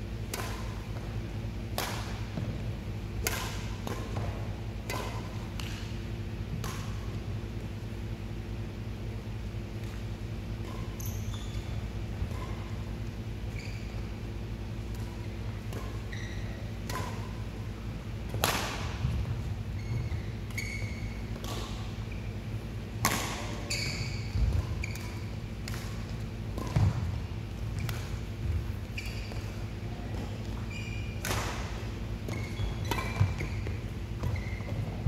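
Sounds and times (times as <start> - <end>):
rackets striking shuttlecock: 0.2 - 2.6, 3.2 - 7.0, 14.7 - 17.6, 18.2 - 19.3, 20.5 - 22.0, 23.0 - 30.6, 31.2 - 34.9
court shoes squeaking: 0.3 - 8.6, 9.2 - 35.0.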